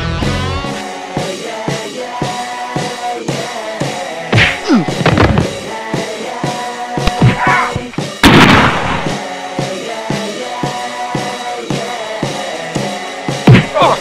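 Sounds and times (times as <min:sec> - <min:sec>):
gunshot: 0:08.2 - 0:09.2.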